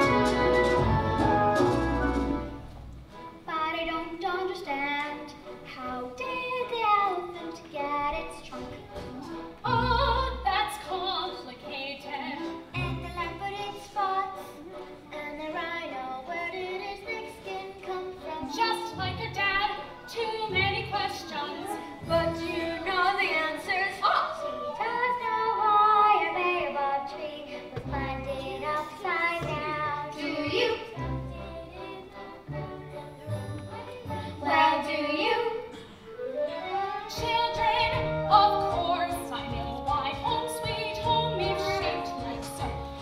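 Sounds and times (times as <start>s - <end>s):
orchestra playing: 0.0s - 7.8s, 8.4s - 43.0s
opera singing: 3.5s - 43.0s.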